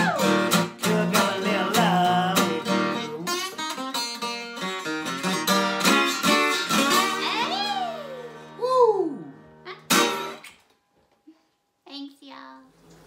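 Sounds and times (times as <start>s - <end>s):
person singing: 0.0s - 3.4s
acoustic guitar strumming: 0.0s - 8.6s, 9.2s - 10.5s.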